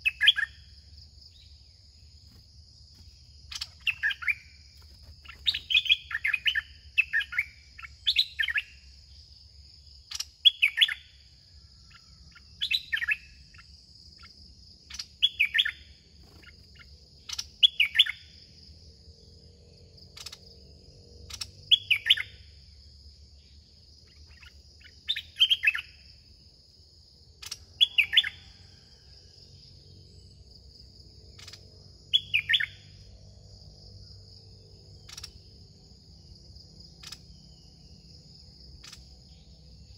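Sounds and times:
songbird calling: 0:00.0 - 0:02.4, 0:03.0 - 0:18.6, 0:21.2 - 0:26.3, 0:27.4 - 0:30.5, 0:31.3 - 0:33.2, 0:34.7 - 0:35.6, 0:36.9 - 0:38.0, 0:38.6 - 0:39.9
high insect buzz: 0:29.6 - 0:39.9.

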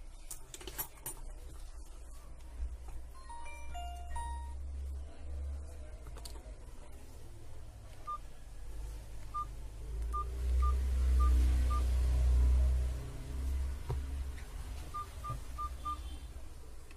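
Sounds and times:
phone keypad beeps: 0:14.9 - 0:16.1.

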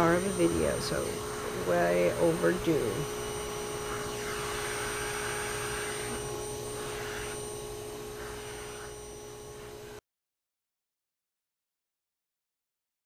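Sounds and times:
vacuum cleaner running: 0:00.0 - 0:10.0.

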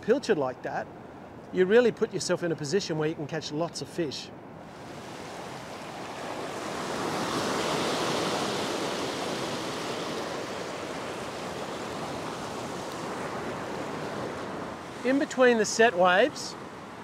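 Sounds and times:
ocean surf against rocks: 0:04.4 - 0:17.0.

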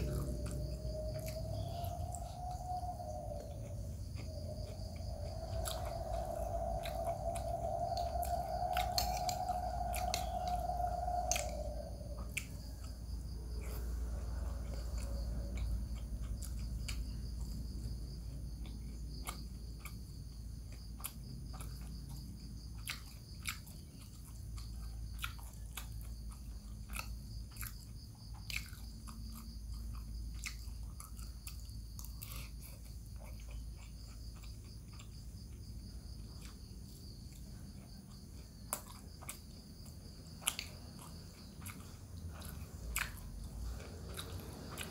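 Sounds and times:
steady low hum: 0:00.0 - 0:44.9
wet chewing and biting: 0:00.0 - 0:44.9.

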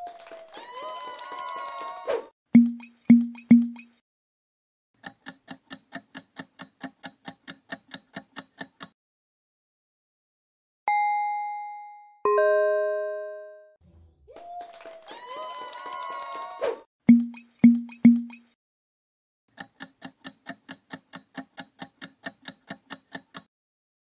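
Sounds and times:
countdown clock ticking: 0:02.5 - 0:03.9, 0:05.0 - 0:09.0, 0:17.1 - 0:18.4, 0:19.6 - 0:23.5
two-note ding-dong chime: 0:10.9 - 0:13.7.

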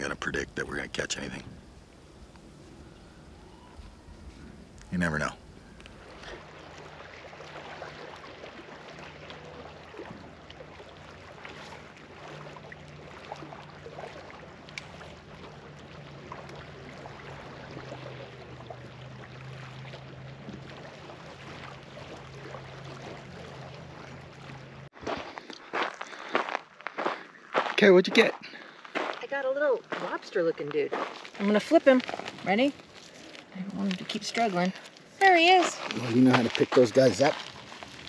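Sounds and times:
wind hiss: 0:00.0 - 0:07.5
distant boat motor humming: 0:00.0 - 0:25.0.

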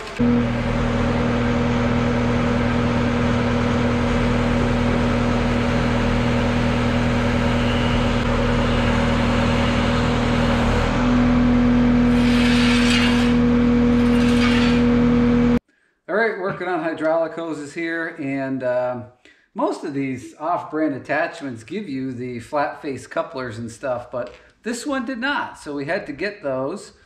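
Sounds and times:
engine running with whine: 0:00.0 - 0:15.6.

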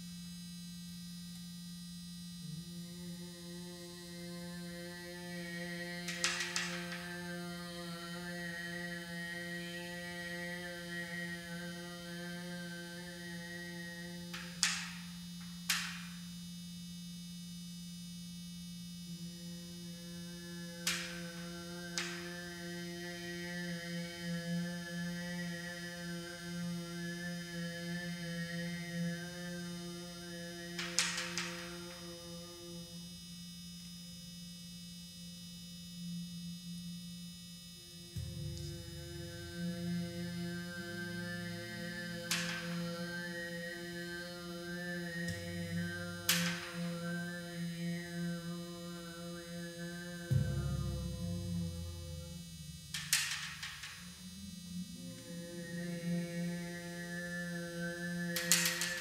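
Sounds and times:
deep buzzing tone: 0:00.0 - 0:59.0
overtone singing drone: 0:00.0 - 0:59.0
speaker resonating through drumhead: 0:00.0 - 0:59.0
drum resonating: 0:38.1 - 0:41.2, 0:50.2 - 0:55.0
sudden sharp noises: 0:38.1 - 0:43.0, 0:50.2 - 0:54.0.

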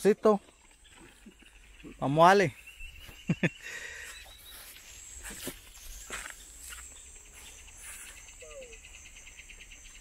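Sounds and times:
insects buzzing: 0:00.0 - 0:10.0
insect pulsing trill: 0:04.3 - 0:10.0.

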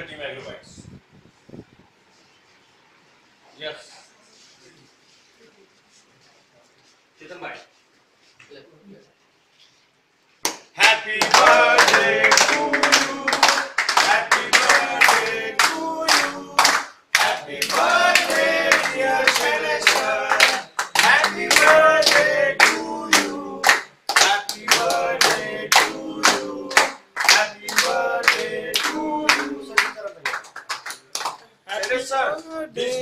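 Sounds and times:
rhythmic clapping: 0:10.4 - 0:33.0
men singing together: 0:10.8 - 0:29.8.

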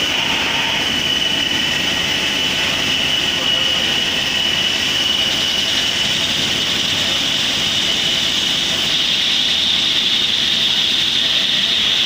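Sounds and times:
lathe cutting metal: 0:00.0 - 0:06.4
constant high machine whine: 0:00.0 - 0:12.0.

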